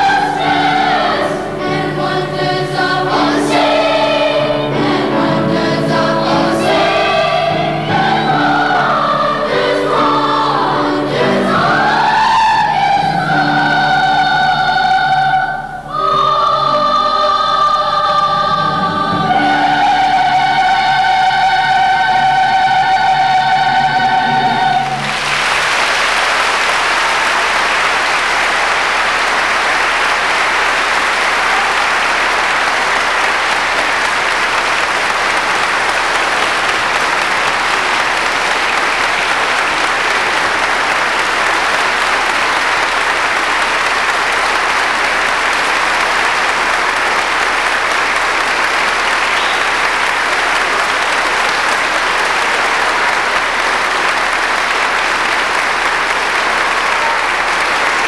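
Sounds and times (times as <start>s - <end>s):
choir holding a chord: 0.0s - 25.7s
audience applauding: 24.8s - 58.0s.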